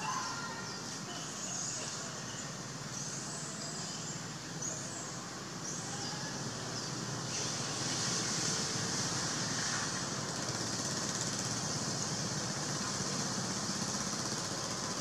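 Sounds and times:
forest ambience: 0:00.0 - 0:08.0
high hiss-like buzz: 0:00.0 - 0:15.0.

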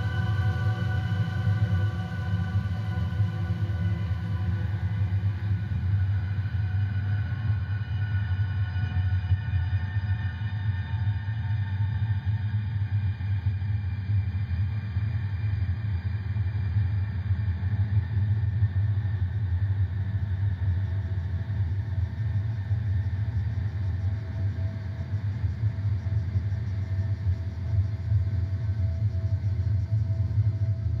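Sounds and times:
low rumbling drone: 0:00.0 - 0:09.4.

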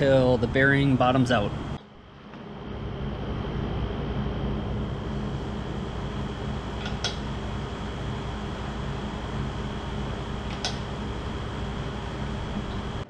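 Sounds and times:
fan humming: 0:00.0 - 0:13.0
high whine: 0:00.0 - 0:13.0
sharp metallic click: 0:06.8 - 0:07.3, 0:10.5 - 0:10.9.

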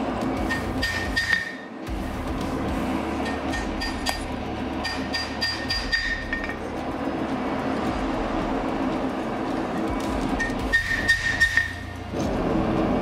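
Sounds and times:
hammer ringing on anvil: 0:03.2 - 0:06.6.

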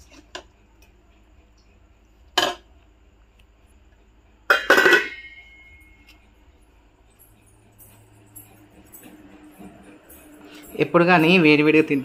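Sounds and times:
clatter of metal on metal: 0:04.5 - 0:06.0
steel kitchenware clinking: 0:04.5 - 0:06.1.

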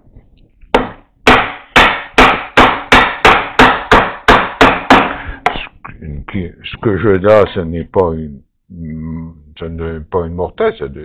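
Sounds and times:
mallet striking chisel: 0:00.7 - 0:05.2.

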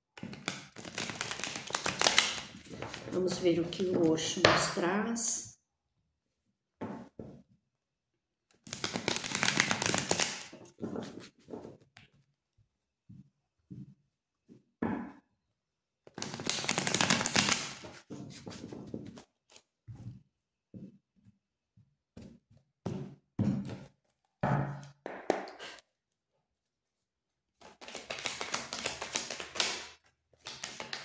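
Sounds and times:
cards being shuffled: 0:00.2 - 0:04.3, 0:08.6 - 0:12.2, 0:16.1 - 0:19.7, 0:27.6 - 0:31.0.

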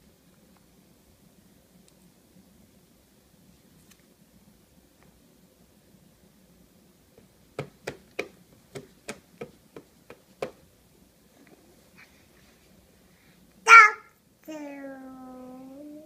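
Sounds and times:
hands slapping plastic tray: 0:07.6 - 0:10.6.

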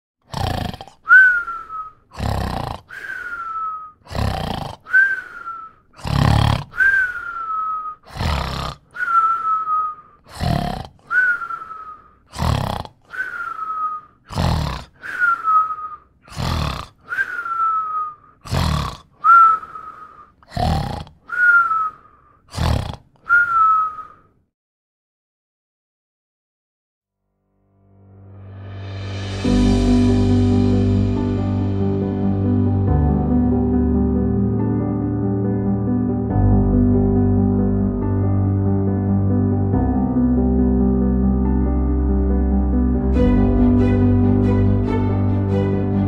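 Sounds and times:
person snoring: 0:00.2 - 0:09.6, 0:10.2 - 0:17.8, 0:18.4 - 0:23.5
snore whistle: 0:00.3 - 0:24.4.

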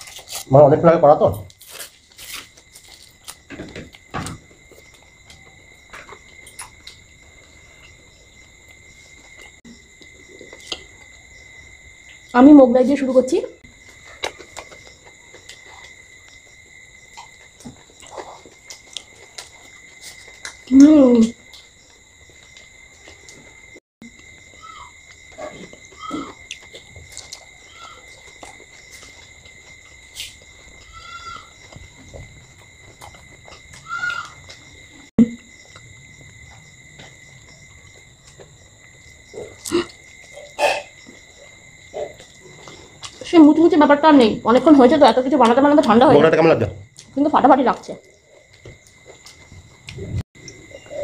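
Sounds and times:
soft chewing: 0:13.8 - 0:20.7, 0:21.4 - 0:34.9, 0:35.6 - 0:43.3.

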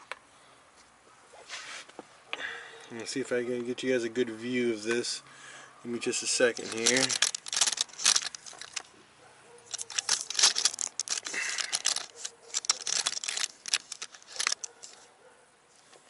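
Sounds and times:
camera handling scrapes and clicks: 0:09.7 - 0:15.0.

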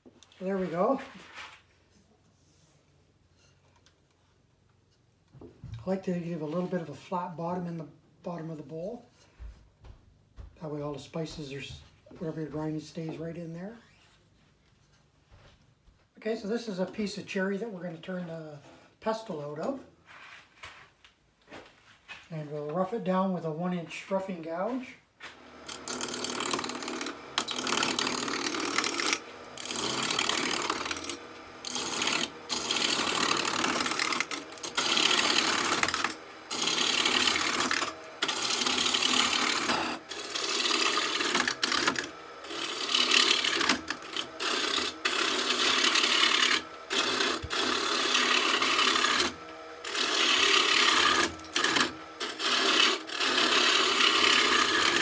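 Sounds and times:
lathe gouge rasping wood: 0:25.3 - 0:55.0.

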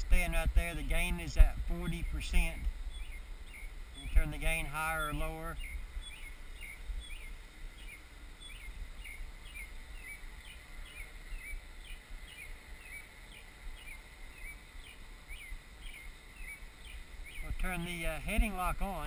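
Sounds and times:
bird chirping: 0:00.0 - 0:19.0
low steady rumble: 0:00.0 - 0:19.0.

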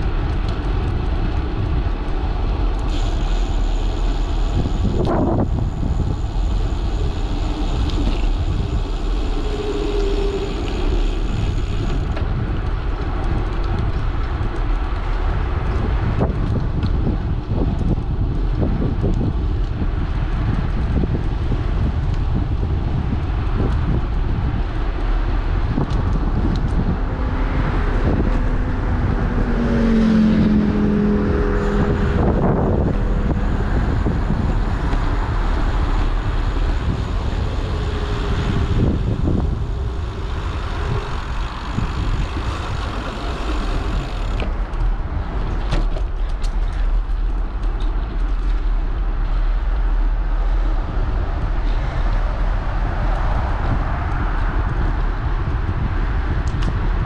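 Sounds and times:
wind rumble on microphone: 0:00.0 - 0:57.0
motor vehicle passing: 0:02.9 - 0:14.6, 0:24.8 - 0:46.2.

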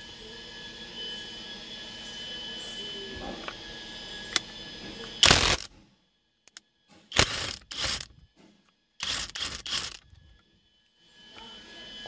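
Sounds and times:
impact wrench hammering: 0:05.2 - 0:05.7, 0:06.5 - 0:08.1, 0:09.0 - 0:10.0.

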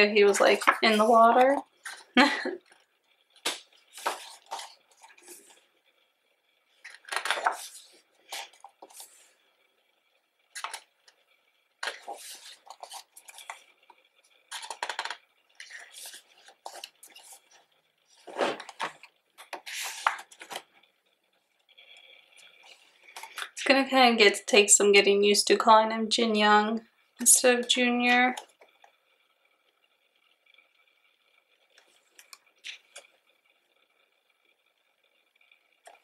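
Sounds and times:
book pages turning: 0:00.0 - 0:05.7, 0:06.8 - 0:09.4, 0:10.5 - 0:11.2, 0:11.8 - 0:20.8, 0:21.8 - 0:23.6, 0:31.8 - 0:33.2.

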